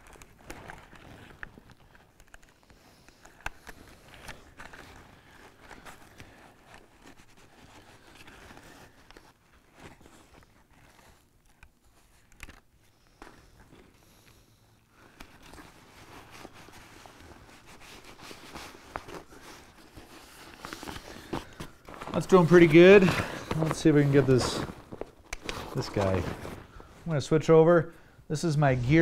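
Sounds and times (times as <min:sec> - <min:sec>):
small clicks and scrapes: 0:00.0 - 0:22.1
fabric rustling and crinkling: 0:00.0 - 0:29.0.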